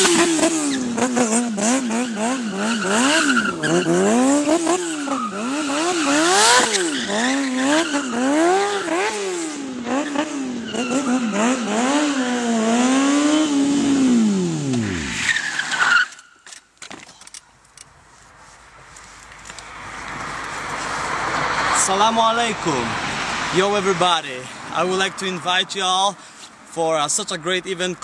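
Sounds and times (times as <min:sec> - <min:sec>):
motorcycle engine revving: 0:00.0 - 0:15.2
tyre squealing on asphalt: 0:00.0 - 0:17.2.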